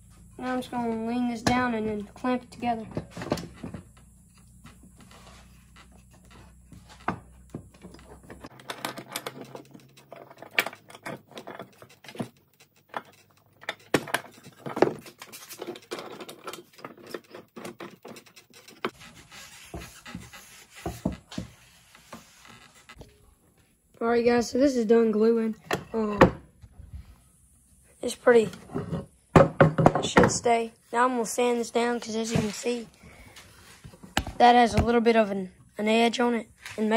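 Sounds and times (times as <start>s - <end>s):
clamps clicking and knocking on wood: 7.8s - 19.0s.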